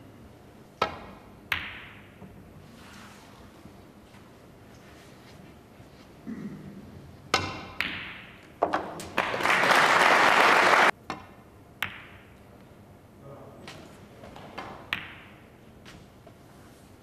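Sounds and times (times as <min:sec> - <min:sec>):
snooker balls clicking: 0:07.3 - 0:09.4, 0:11.0 - 0:12.4, 0:14.4 - 0:15.4
audience applause: 0:09.2 - 0:10.9.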